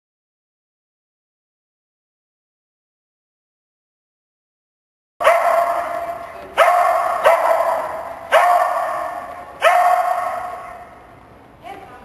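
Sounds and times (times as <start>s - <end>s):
dog barking with echo: 5.2s - 11.1s.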